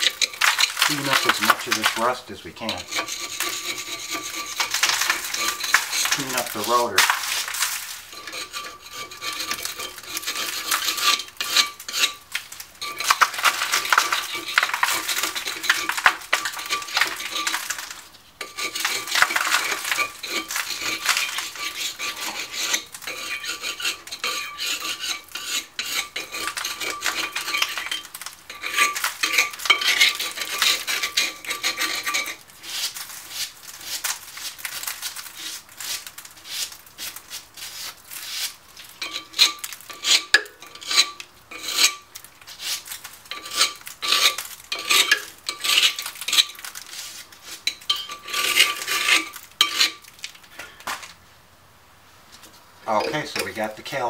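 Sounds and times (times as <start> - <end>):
wire brush scraping metal: 0.0 - 51.0, 52.4 - 54.0.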